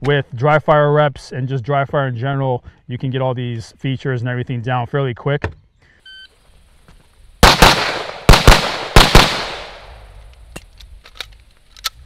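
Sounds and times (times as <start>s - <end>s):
pistol shots: 7.4s - 10.1s.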